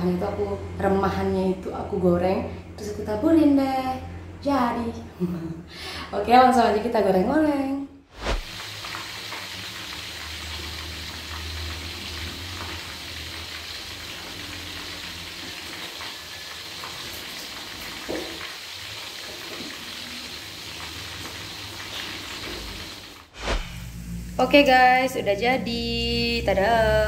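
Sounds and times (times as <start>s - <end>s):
broth simmering in a wok: 8.4s - 25.3s.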